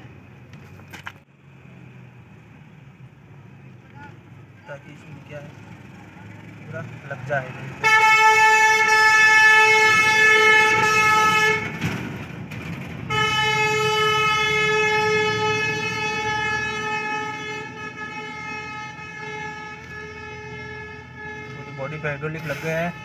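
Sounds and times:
vehicle horn blasts: 7.8 - 11.8, 13.1 - 23.0.

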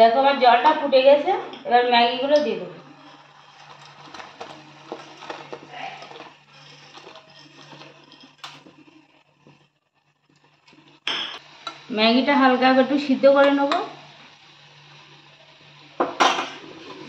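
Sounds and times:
water boiling in saucepan: 0.0 - 17.0
dry noodles pattering into pot: 3.2 - 8.9.

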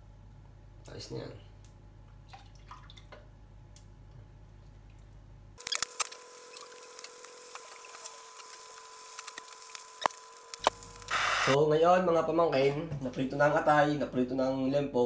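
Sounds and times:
liver sizzling in hot oil: 5.6 - 11.6.

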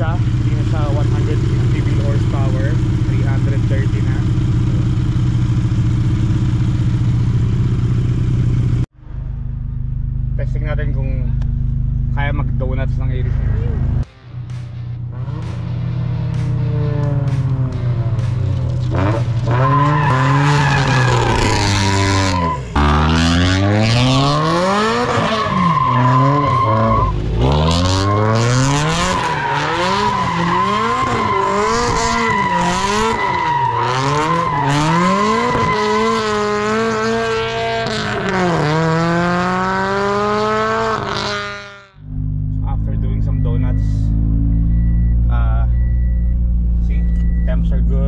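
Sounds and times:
car engine revving: 0.0 - 48.0
tyre squeal: 18.9 - 22.9, 23.9 - 36.7.

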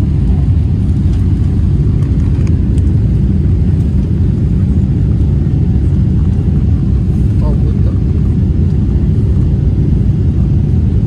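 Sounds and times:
jet engine rumble in cabin: 0.0 - 11.0.

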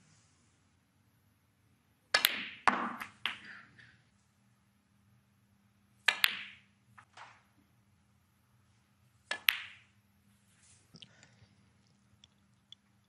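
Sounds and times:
snooker balls clicking: 2.1 - 3.6, 6.0 - 7.5, 9.3 - 10.0.

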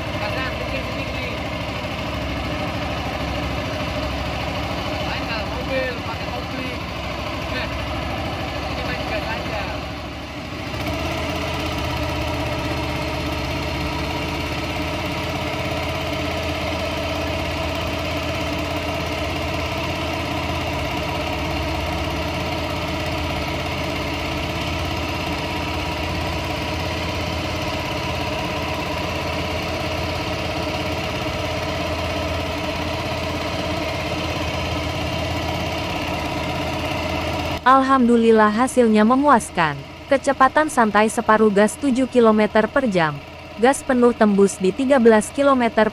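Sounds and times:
outboard motor running: 0.0 - 45.9.

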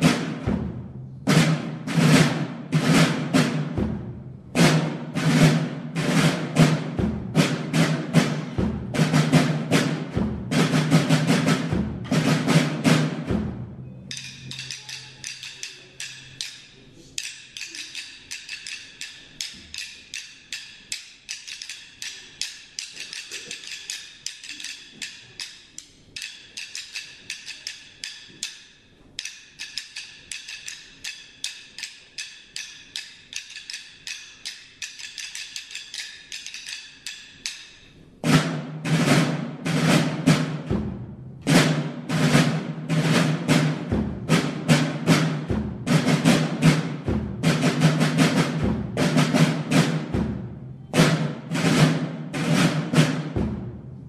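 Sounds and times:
drums beating march cadence: 0.0 - 16.6, 38.2 - 54.0.

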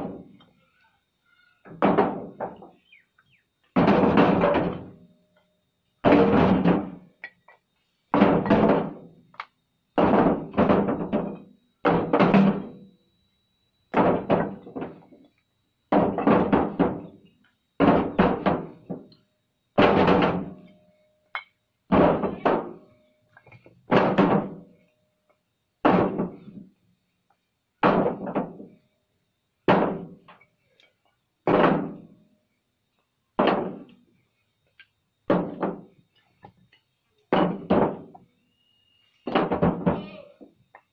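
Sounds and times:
bricks knocking with heavy thunks: 1.7 - 2.6, 3.8 - 5.0, 6.0 - 7.0, 8.1 - 9.1, 10.0 - 12.8, 13.9 - 15.1, 15.9 - 17.2, 17.8 - 19.1, 19.8 - 20.6, 21.9 - 22.8, 23.9 - 24.6, 25.8 - 26.7, 27.8 - 28.7, 29.7 - 30.2, 31.4 - 32.0, 33.4 - 34.0, 35.3 - 35.9, 37.3 - 38.2, 39.2 - 40.0.

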